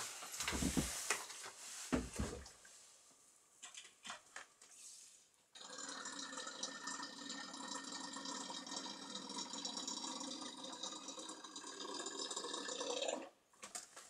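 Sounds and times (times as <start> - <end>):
liquid gurgling into tank: 5.6 - 13.3.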